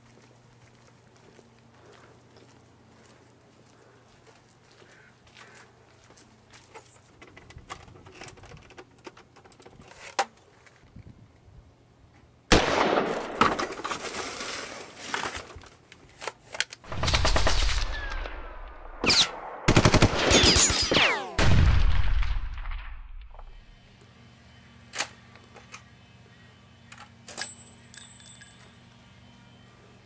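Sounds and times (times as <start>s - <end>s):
automatic gunfire: 12.5s - 13.6s, 19.0s - 21.7s.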